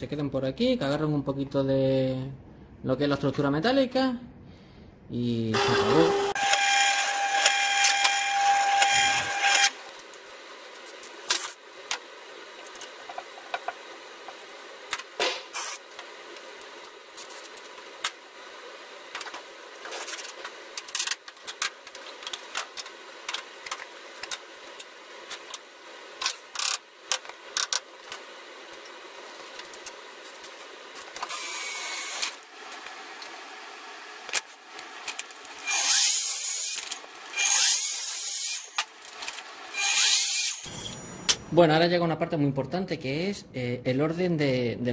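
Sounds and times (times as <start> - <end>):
drill press running: 5.6 - 9.8
miter saw cutting wood: 5.6 - 9.8, 31.3 - 32.4, 35.6 - 38.8, 39.6 - 41.0.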